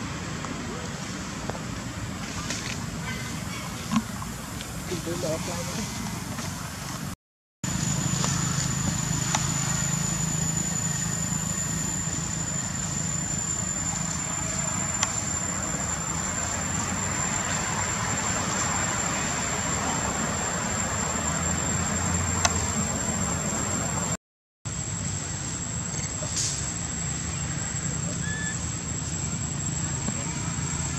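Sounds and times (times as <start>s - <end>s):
high-pitched whine: 7.6s - 30.9s
low hum: 7.7s - 30.9s.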